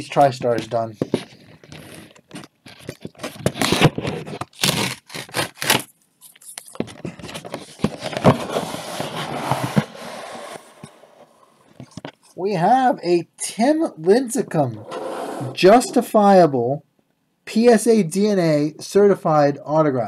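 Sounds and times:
cardboard and plastic crinkling: 1.0 - 10.0.

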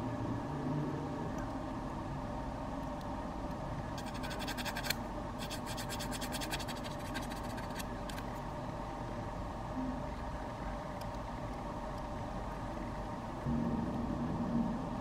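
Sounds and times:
sanding stick rasping: 4.0 - 7.8.

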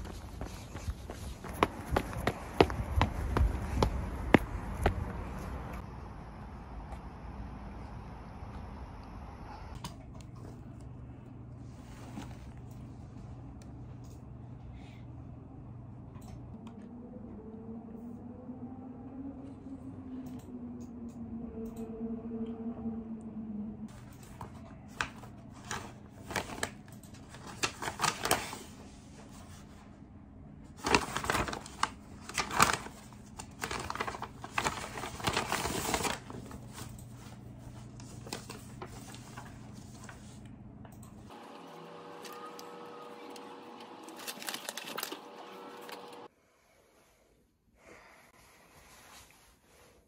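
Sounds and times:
paper packaging crinkling: 25.0 - 28.8, 30.8 - 40.2, 42.1 - 46.3.

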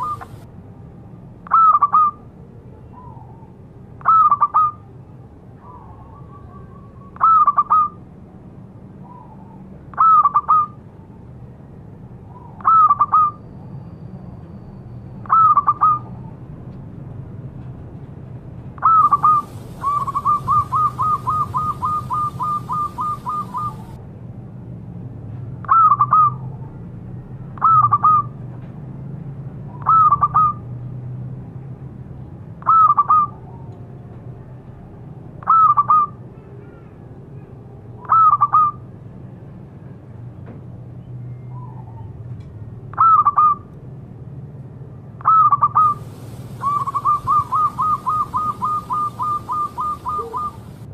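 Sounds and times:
dove cooing: 0.0 - 0.4, 18.8 - 24.0, 45.2 - 50.9.

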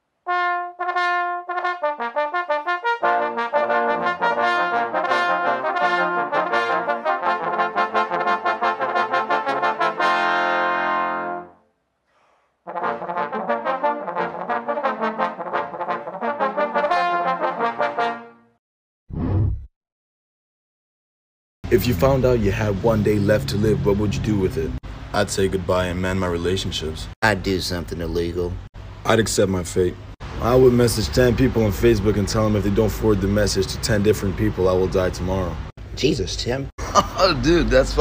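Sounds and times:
brass ensemble playing: 0.3 - 11.6, 12.7 - 18.5.

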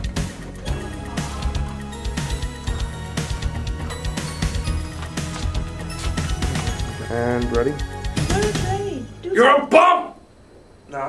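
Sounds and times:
music with heavy bass beat: 0.0 - 7.0.

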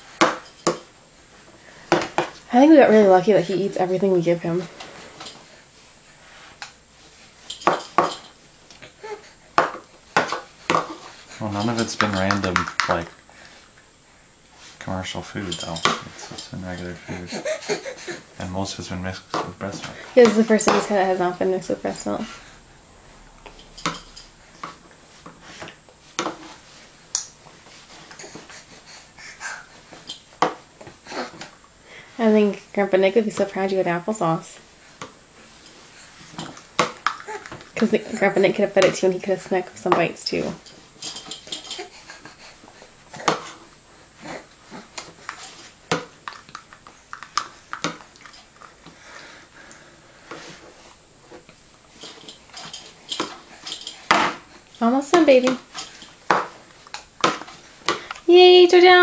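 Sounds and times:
baby breathing and snorting: 16.1 - 18.4, 27.7 - 30.1, 30.9 - 31.6, 41.5 - 45.7.

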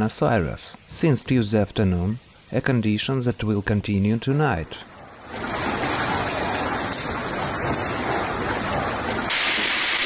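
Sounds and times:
torrential rain pouring: 4.8 - 10.0.

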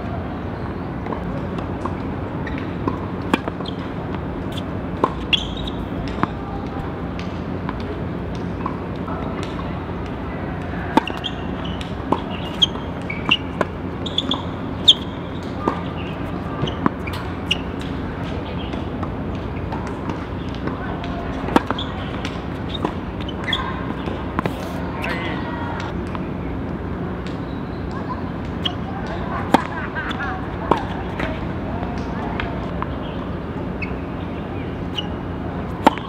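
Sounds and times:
steady background hum: 0.0 - 36.0
tennis balls struck by rackets: 1.0 - 26.3, 34.8 - 36.0
balls bouncing on court: 1.0 - 26.4.

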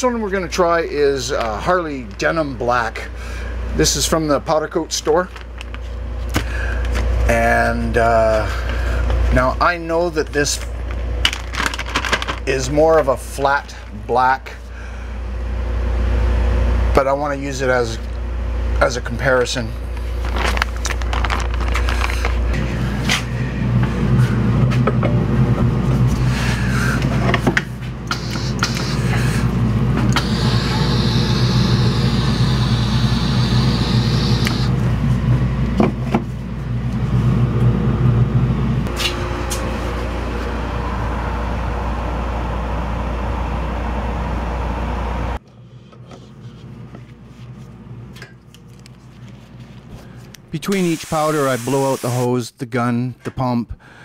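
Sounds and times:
dust collection fan drone: 0.0 - 52.5
spray gun air hiss: 28.1 - 29.1, 30.2 - 34.7, 50.7 - 52.3.

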